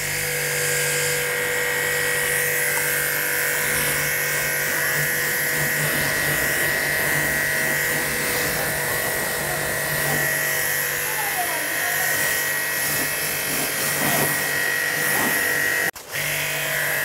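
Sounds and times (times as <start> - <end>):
pressure washer motor whining: 0.0 - 17.0
water jet hissing: 2.7 - 15.9.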